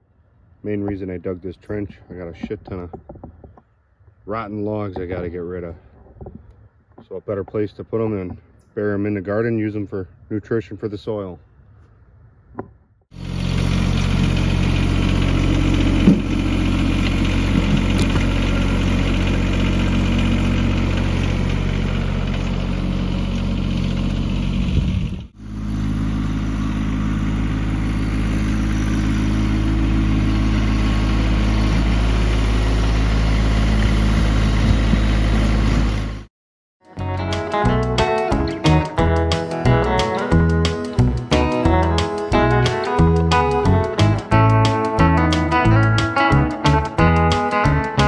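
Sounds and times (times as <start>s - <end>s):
tractor diesel engine running: 13.1s - 36.3s, 37.0s - 48.0s
front loader thumps: 15.2s - 20.2s.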